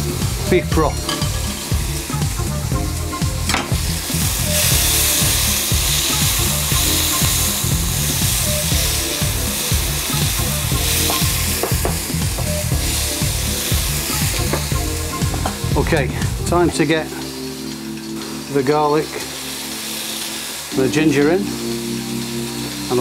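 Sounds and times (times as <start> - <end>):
vegetables sizzling in a wok: 0.0 - 23.0.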